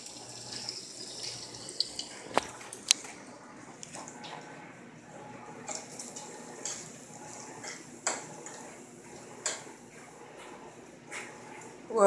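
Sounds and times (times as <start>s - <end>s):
bacon sizzling: 0.0s - 2.9s.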